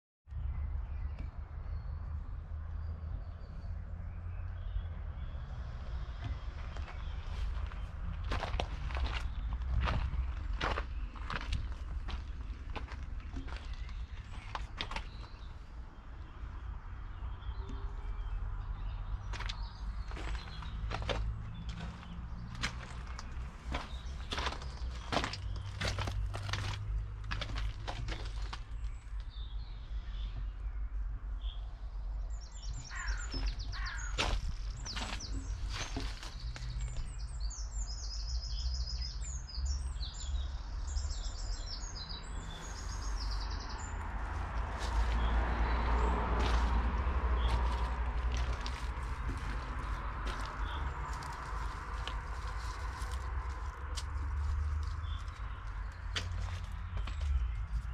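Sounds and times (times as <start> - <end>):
songbirds chirping and trilling: 0.3 - 57.9
footstep on gravel: 6.1 - 15.5, 19.2 - 29.2, 32.8 - 37.2, 42.6 - 57.9
low outdoor rumble: 42.2 - 57.9.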